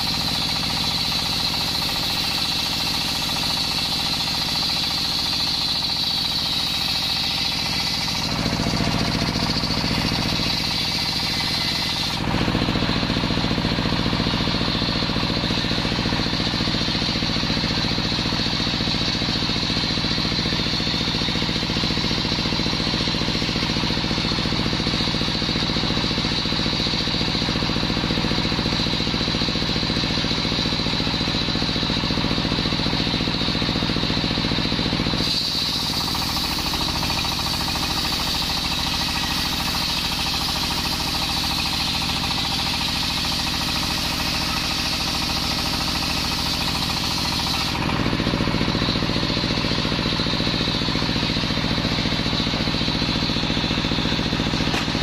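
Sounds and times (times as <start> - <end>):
saw blade cutting wood: 0.0 - 24.9, 35.0 - 51.2, 51.9 - 55.0
circular saw drive drone: 6.1 - 16.6.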